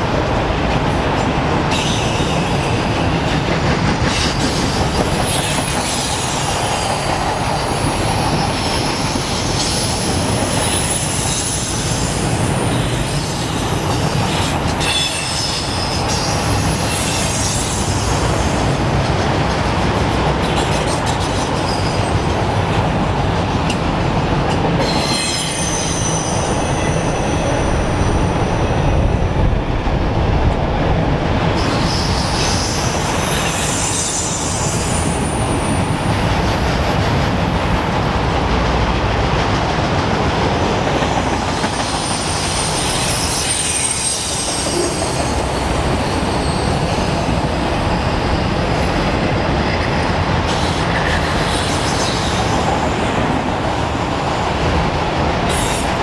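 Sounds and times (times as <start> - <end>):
train wheels rumbling on rails: 0.0 - 56.0
high wheel squeal: 1.7 - 3.0, 4.2 - 18.6, 24.8 - 28.3, 31.6 - 35.9, 41.6 - 47.6.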